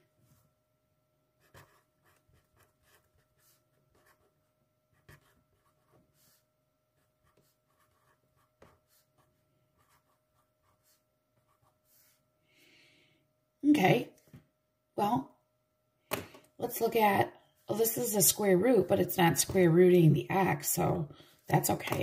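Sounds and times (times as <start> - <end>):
pen scratching on paper: 1.4 - 12.2.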